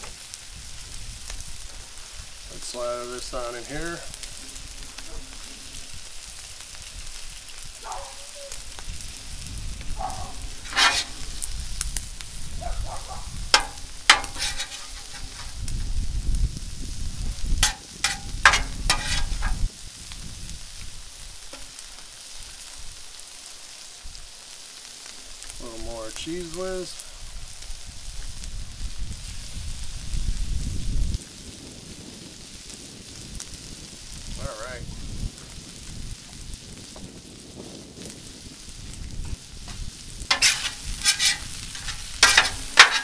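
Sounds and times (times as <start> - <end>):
food sizzling on a griddle: 0.0 - 43.0
metal spatula scraping griddle: 10.0 - 11.7, 13.4 - 16.0, 17.4 - 19.7, 39.7 - 43.0.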